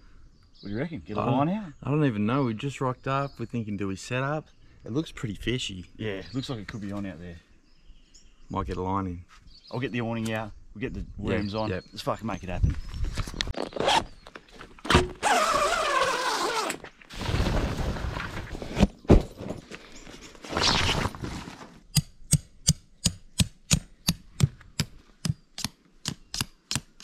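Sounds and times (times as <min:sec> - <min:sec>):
camping gear scraping and rustling: 0:12.8 - 0:21.9.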